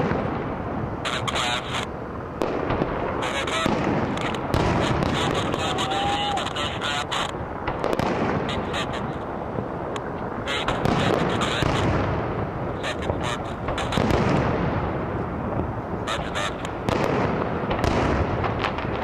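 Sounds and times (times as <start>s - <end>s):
fireworks bursting: 0.0s - 19.0s
sharp crackling: 0.0s - 19.0s.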